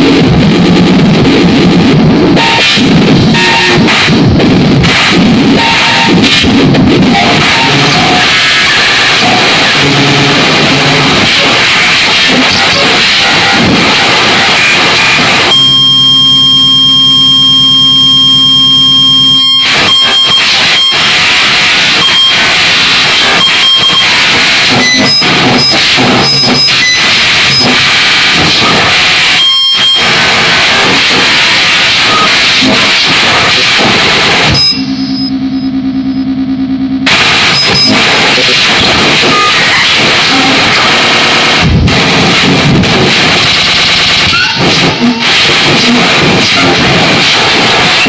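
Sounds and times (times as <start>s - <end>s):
buzzing drone: 0.0s - 48.0s
dense static: 0.0s - 48.0s
harsh digital noise music: 0.0s - 48.0s
high beeps: 3.3s - 4.0s, 5.6s - 6.3s, 15.4s - 21.1s, 21.9s - 22.5s, 23.2s - 27.8s, 28.6s - 30.1s, 32.0s - 32.4s, 34.4s - 38.1s, 39.2s - 39.7s.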